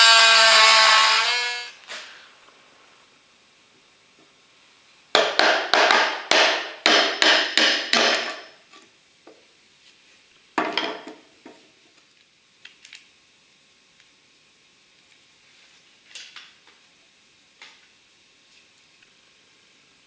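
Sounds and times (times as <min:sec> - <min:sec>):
hammer striking steel chisel: 0:05.2 - 0:08.6.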